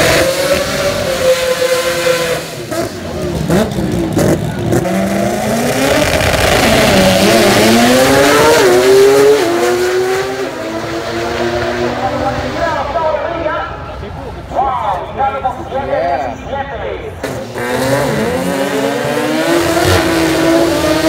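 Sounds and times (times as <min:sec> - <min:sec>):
drag car engines revving: 0:00.0 - 0:21.0.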